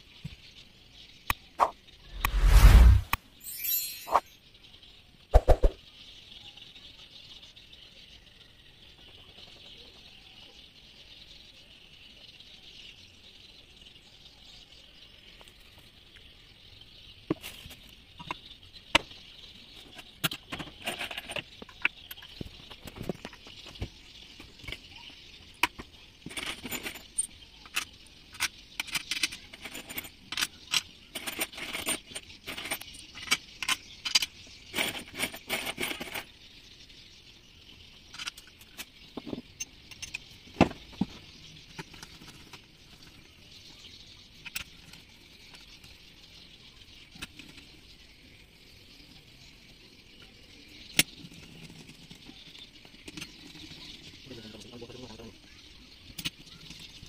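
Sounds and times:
metallic clinks of tools and parts: 0:03.4 - 0:04.4, 0:26.2 - 0:36.3.

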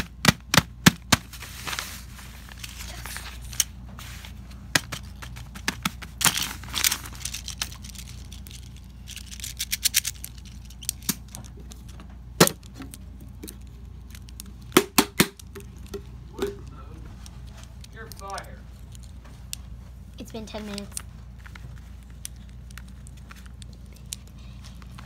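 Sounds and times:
paper rustling and crinkling: 0:01.2 - 0:12.1, 0:20.5 - 0:25.0.

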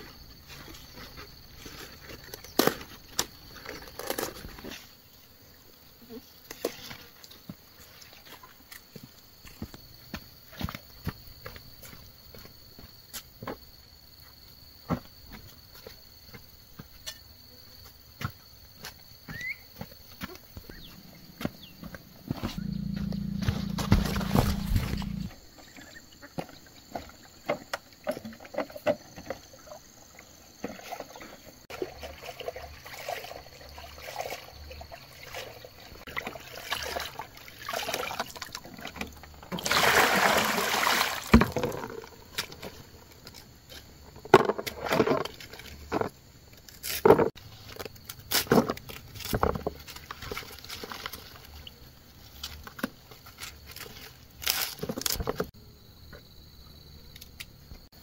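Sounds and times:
water sloshing and pouring: 0:23.4 - 0:25.3, 0:30.6 - 0:42.8.

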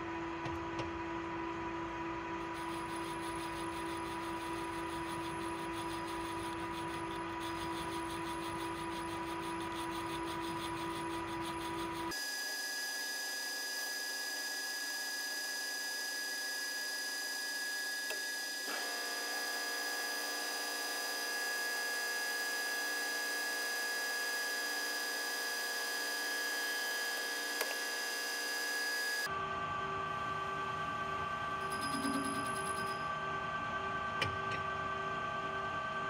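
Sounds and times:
high steady whining tones: 0:02.4 - 0:12.2
lathe cutting hiss: 0:02.4 - 0:12.2.

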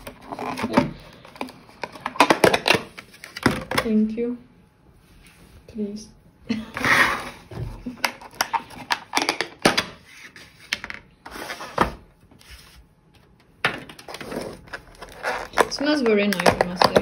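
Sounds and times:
plastic containers clicking and rattling: 0:00.0 - 0:04.0, 0:07.9 - 0:10.0, 0:13.6 - 0:17.0.

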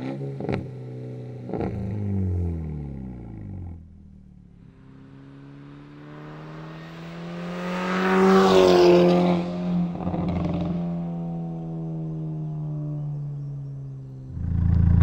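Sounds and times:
car driving past: 0:04.5 - 0:15.0.

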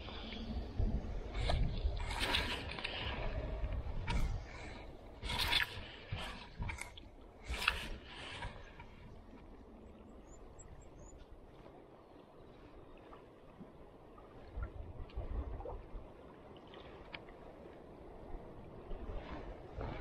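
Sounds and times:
light breeze: 0:00.0 - 0:20.0
water lapping gently: 0:00.0 - 0:20.0.

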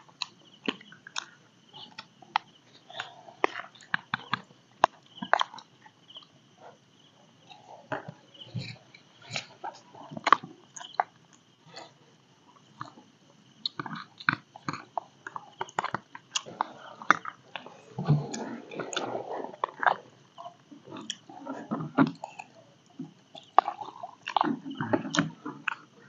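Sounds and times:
chewing: 0:00.0 - 0:26.0.

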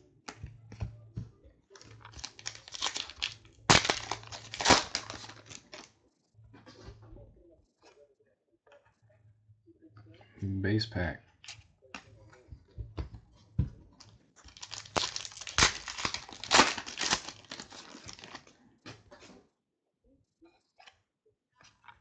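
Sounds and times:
foil wrapper tearing and crinkling: 0:01.8 - 0:05.9, 0:14.5 - 0:18.5
cards clicking: 0:01.9 - 0:05.9.

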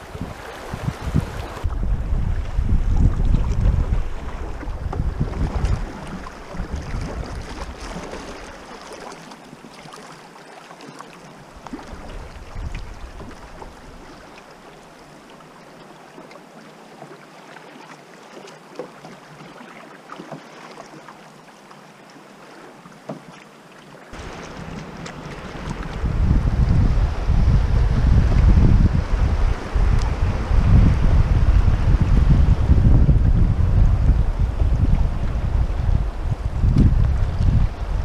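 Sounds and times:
wind buffeting microphone: 0:00.0 - 0:08.6, 0:11.7 - 0:14.1, 0:24.2 - 0:38.0
river water lapping on hull: 0:00.0 - 0:38.0
paddle splashes and knocks: 0:00.1 - 0:14.8, 0:15.7 - 0:32.2.

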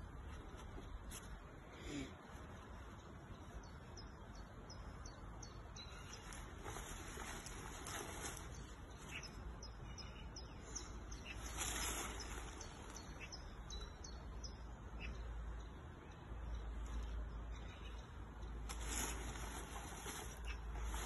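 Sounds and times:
birds chirping: 0:00.0 - 0:21.0
fabric and buckles rustling: 0:06.1 - 0:09.1, 0:18.7 - 0:21.0.

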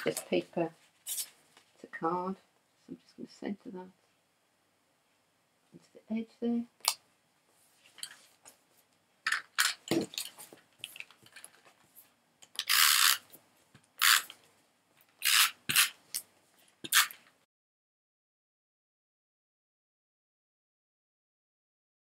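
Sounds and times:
tape runner scraping card: 0:12.6 - 0:13.3, 0:14.0 - 0:14.4, 0:15.2 - 0:16.0, 0:16.9 - 0:17.2.

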